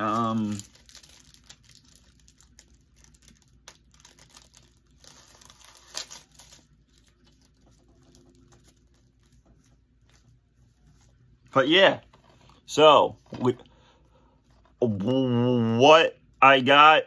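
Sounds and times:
packaging crackle: 0:00.0 - 0:10.4
plastic and paper packaging rustling: 0:00.0 - 0:13.6.

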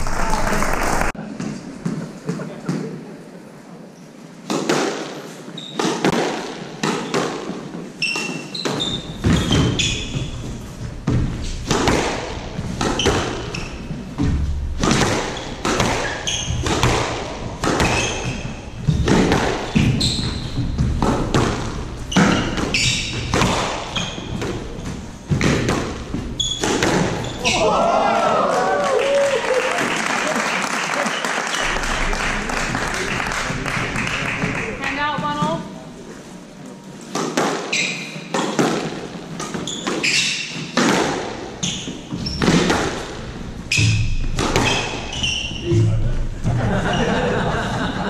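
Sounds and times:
squash ball hitting rackets and walls: 0:04.4 - 0:27.7, 0:37.0 - 0:46.9
shoes squeaking on wooden floor: 0:05.3 - 0:06.2, 0:06.8 - 0:27.7, 0:37.4 - 0:47.2.

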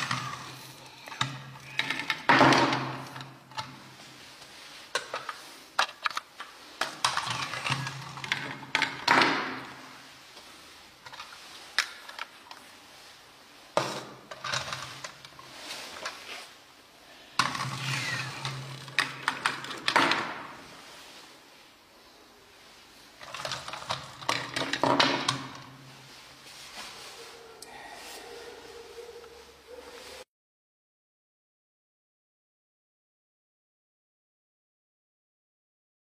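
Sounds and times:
toys scraping and rustling: 0:00.0 - 0:02.3, 0:02.9 - 0:09.0, 0:17.4 - 0:20.0.

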